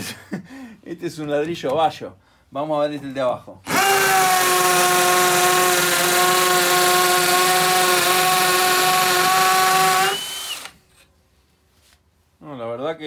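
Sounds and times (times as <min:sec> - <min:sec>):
hammer drill boring into brick: 0:03.7 - 0:10.8.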